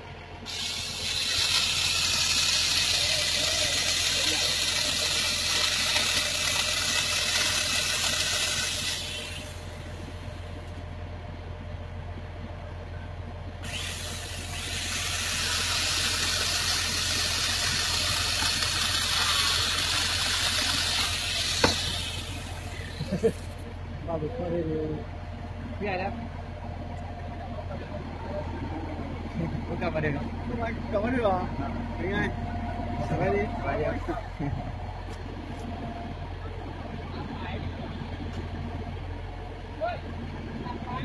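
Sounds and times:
crane engine running: 0.0s - 41.0s
loud hiss: 0.4s - 10.1s, 13.6s - 23.4s.

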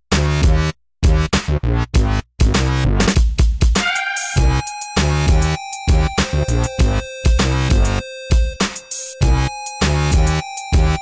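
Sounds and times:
electronic dance music: 3.8s - 11.0s.

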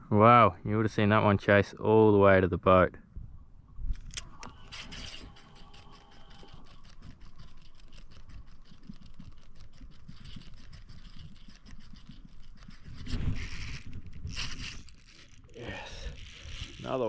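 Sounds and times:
fishing reel gears ticking: 4.5s - 17.0s.

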